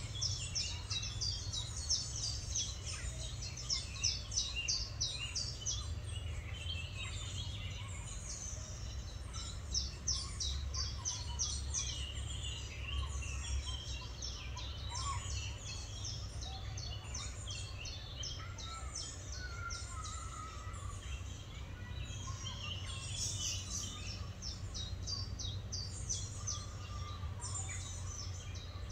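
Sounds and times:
songbirds singing and chirping: 0.0 - 28.9.

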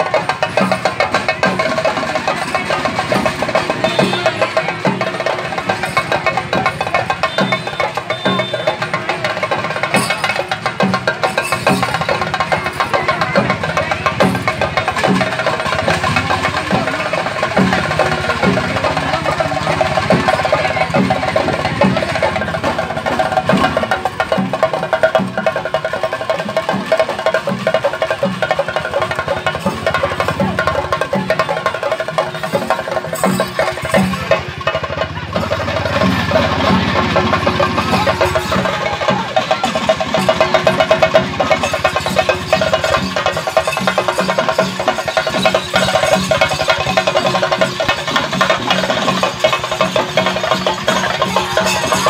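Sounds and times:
procession drums in a fast rhythm: 0.0 - 52.0.

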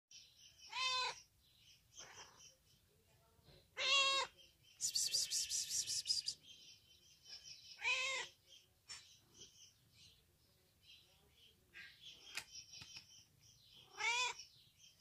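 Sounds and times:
cat meowing: 0.7 - 1.2, 3.8 - 4.3, 7.8 - 8.3, 13.9 - 14.4
high-pitched rasping chatter: 4.8 - 6.4.

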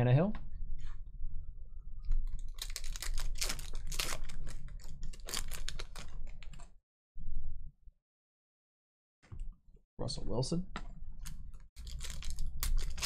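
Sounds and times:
foil wrapper crinkling and tearing: 2.4 - 6.5, 11.8 - 13.0.

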